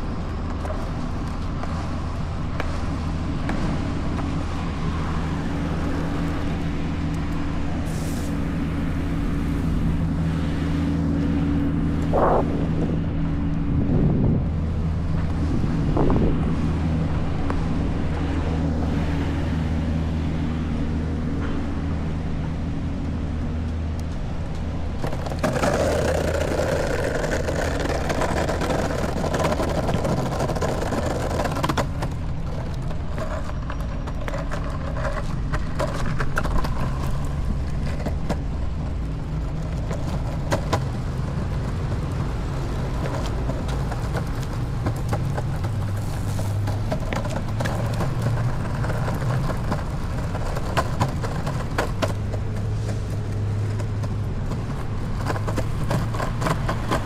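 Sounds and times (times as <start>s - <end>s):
longboard wheels rolling on pavement: 0.0s - 57.0s
wheels clicking over sidewalk joints: 0.0s - 57.0s
rushing noise: 2.7s - 23.5s.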